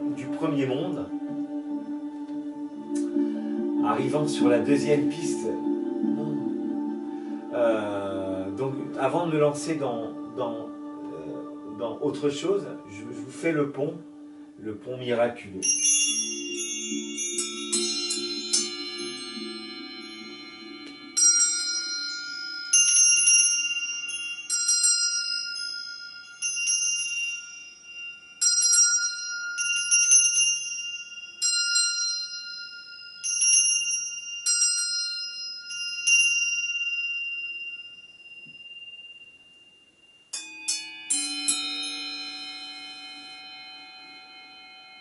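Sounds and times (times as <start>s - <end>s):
lower-pitched metal instrument struck: 15.6s - 28.3s
handbell ringing: 15.6s - 45.0s.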